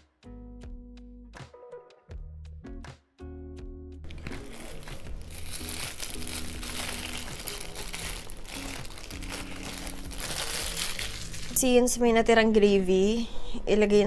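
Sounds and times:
background music: 0.0 - 14.0
paper wrapper crinkling: 4.1 - 11.9.

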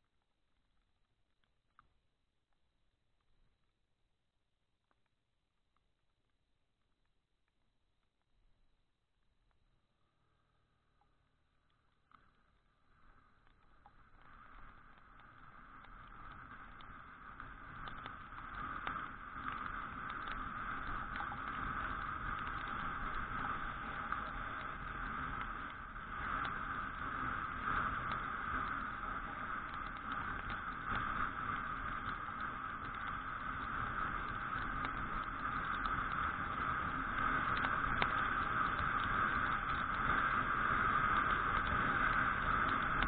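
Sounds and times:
raindrops ticking on camera: 0.0 - 43.0
muffled scooter riding rush: 16.4 - 43.0.

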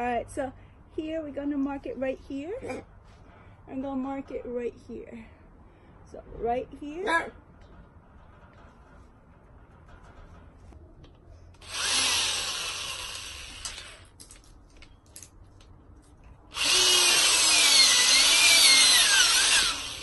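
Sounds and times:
electric drill boring into wood: 11.6 - 14.0, 16.5 - 20.0.

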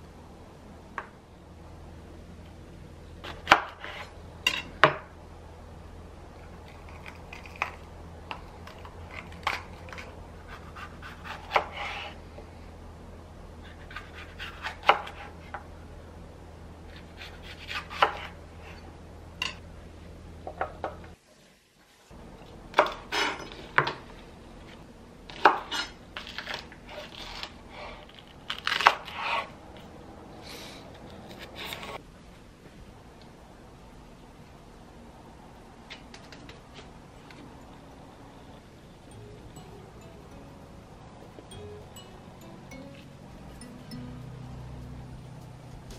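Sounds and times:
low steady hum: 0.0 - 21.2, 22.1 - 45.9.

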